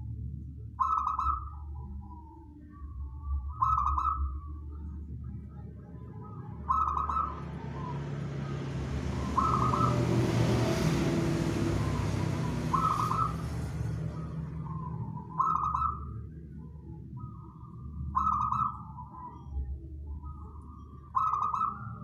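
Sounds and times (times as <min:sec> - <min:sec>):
dove cooing: 0:00.8 - 0:04.9, 0:06.1 - 0:22.0
passing vehicle: 0:05.7 - 0:19.7.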